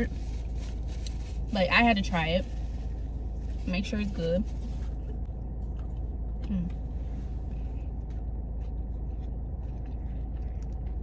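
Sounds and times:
steady low rumble: 0:00.0 - 0:11.0
person chewing food: 0:04.6 - 0:11.0.

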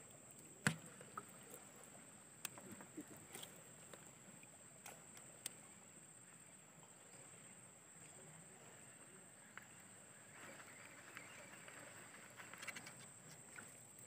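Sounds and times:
faint riverside ambience: 0:00.0 - 0:14.0
faint ticks and rattles: 0:09.4 - 0:14.0.

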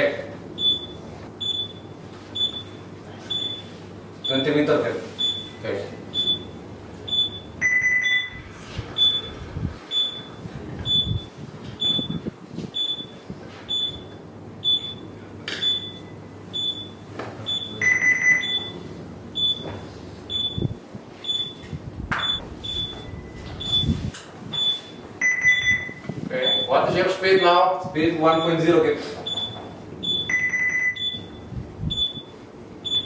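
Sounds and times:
short high alarm beeps: 0:00.6 - 0:03.7, 0:05.2 - 0:08.4, 0:09.0 - 0:12.2, 0:12.8 - 0:15.0, 0:15.6 - 0:18.8, 0:19.4 - 0:19.7, 0:20.3 - 0:21.6, 0:22.2 - 0:26.8, 0:29.3 - 0:33.0
longer lower alarm tone: 0:24.7 - 0:26.7.

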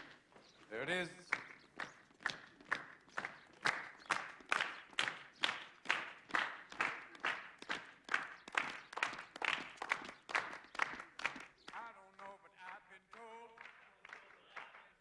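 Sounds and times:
footsteps on stone paving: 0:00.0 - 0:06.8
group clapping in unison: 0:00.0 - 0:15.0.

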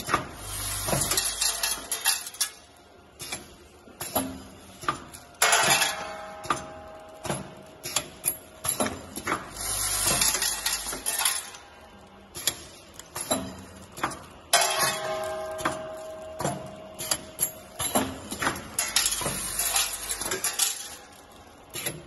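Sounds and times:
metal parts clinking and clicking: 0:00.8 - 0:04.6, 0:07.8 - 0:11.6, 0:12.4 - 0:22.0.

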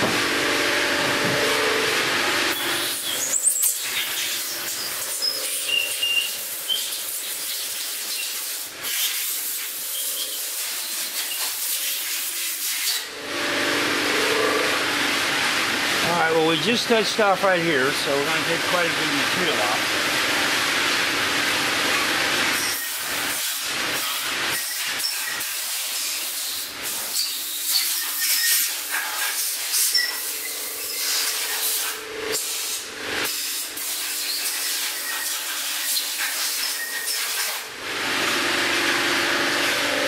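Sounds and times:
resurfacing machine cutting metal: 0:00.0 - 0:40.0.

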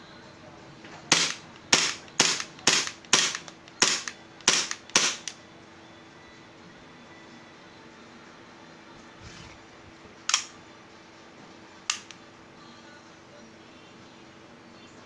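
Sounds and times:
airsoft pistol shots: 0:01.1 - 0:05.4.

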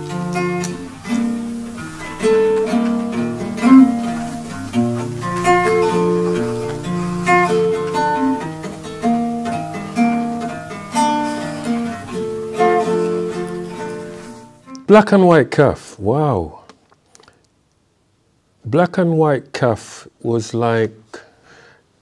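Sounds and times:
acoustic guitar: 0:00.0 - 0:15.0.

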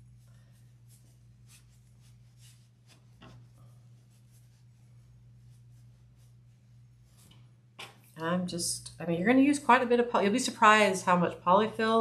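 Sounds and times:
rustling and scratching of stuffing: 0:00.0 - 0:08.2
steady low hum: 0:00.0 - 0:12.0.

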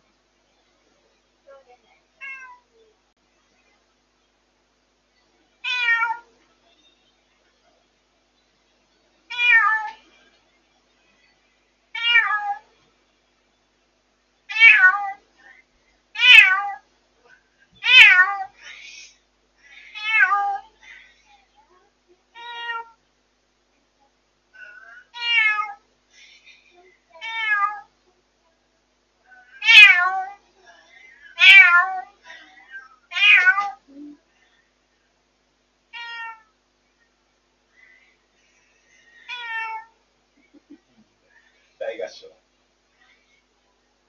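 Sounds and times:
cats meowing loudly: 0:02.2 - 0:02.6, 0:05.6 - 0:06.3, 0:09.3 - 0:10.0, 0:12.0 - 0:12.7, 0:14.5 - 0:15.2, 0:16.2 - 0:16.8, 0:17.8 - 0:18.6, 0:19.9 - 0:20.7, 0:22.3 - 0:23.0, 0:25.0 - 0:25.8, 0:27.2 - 0:27.9, 0:29.4 - 0:30.4, 0:31.4 - 0:32.1, 0:32.7 - 0:33.8, 0:35.9 - 0:36.5, 0:39.2 - 0:40.0.

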